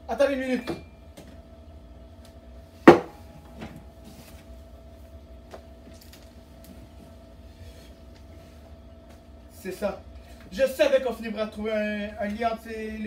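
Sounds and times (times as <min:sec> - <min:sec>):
sharp knock: 0:02.9 - 0:03.2.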